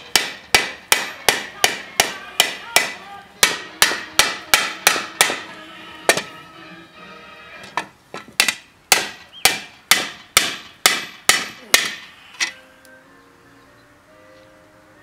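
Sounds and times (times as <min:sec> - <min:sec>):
hammer ringing on hot steel: 0:00.1 - 0:05.4.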